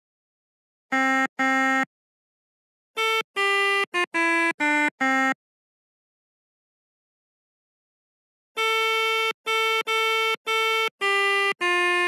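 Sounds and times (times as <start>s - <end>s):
melodica notes: 0.9s - 1.9s, 3.0s - 5.4s, 8.6s - 12.0s.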